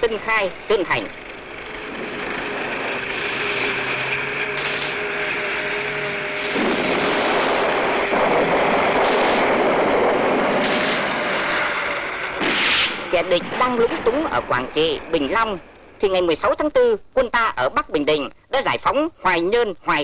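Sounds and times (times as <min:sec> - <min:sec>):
massed gunfire and shelling: 0:06.3 - 0:14.1.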